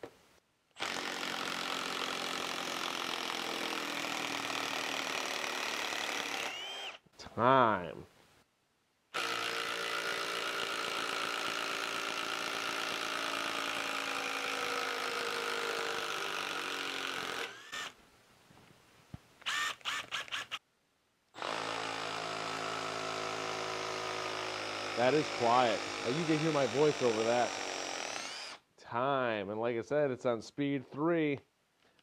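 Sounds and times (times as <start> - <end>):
impact driver driving screw into wood: 0.8 - 7.0, 9.2 - 18.0, 19.4 - 20.6, 21.4 - 28.6.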